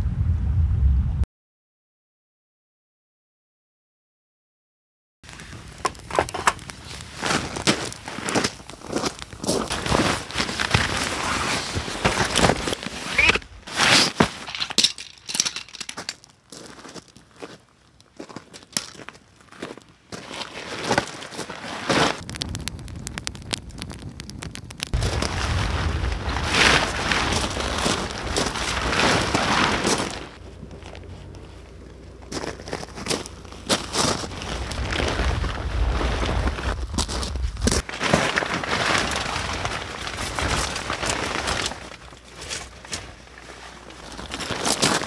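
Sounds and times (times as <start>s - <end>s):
nylon bag rustling: 5.3s - 17.0s, 19.6s - 22.3s, 24.9s - 45.0s
footsteps crunching on gravel: 5.5s - 22.3s, 24.9s - 45.0s.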